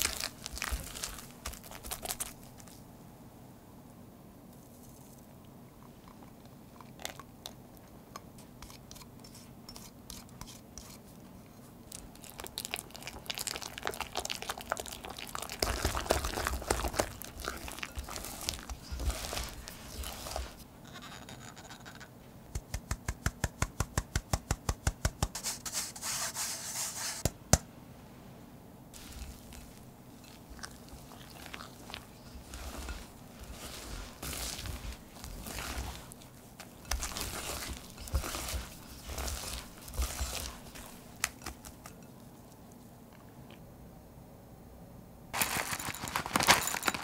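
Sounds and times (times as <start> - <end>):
whisk beating batter in glass bowl: 29.0 - 42.1.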